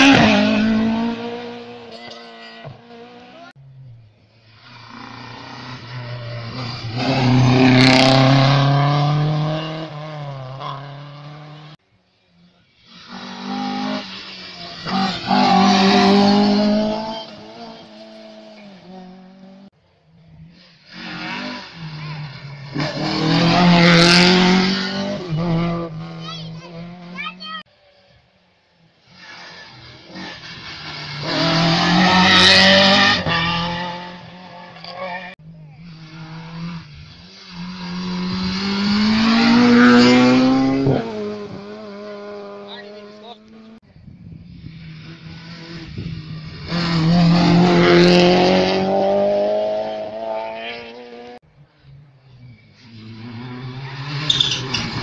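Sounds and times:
rally cars passing revving: 0:00.0 - 0:27.6, 0:28.8 - 0:55.0.

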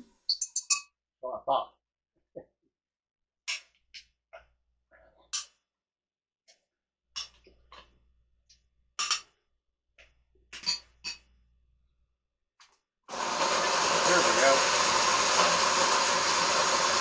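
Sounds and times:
blender motor whirring: 0:13.1 - 0:17.0.

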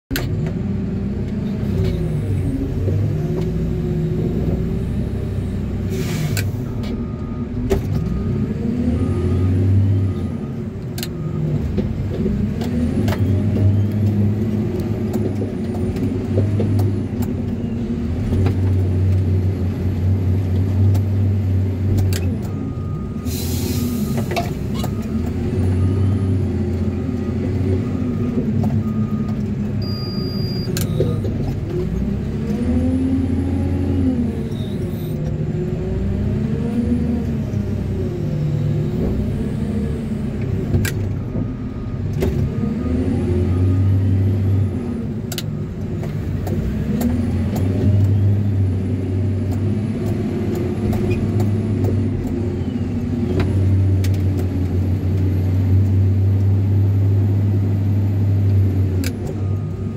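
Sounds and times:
diesel engine revving: 0:00.1 - 0:59.9
reverse alarm beeping: 0:27.9 - 0:31.2.

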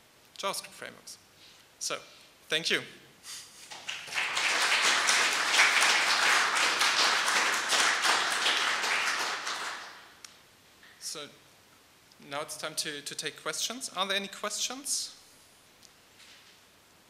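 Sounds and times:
audience applauding: 0:03.6 - 0:10.1.

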